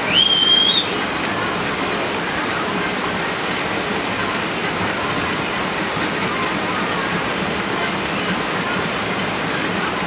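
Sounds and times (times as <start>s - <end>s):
short high whistle: 0.1s - 1.0s.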